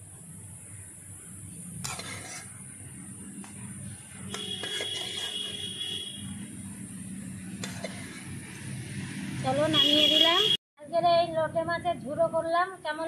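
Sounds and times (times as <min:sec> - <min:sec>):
metal spatula scraping a wok: 0:01.8 - 0:02.7, 0:03.4 - 0:06.1, 0:07.6 - 0:08.4
high metallic squeal: 0:04.3 - 0:05.8.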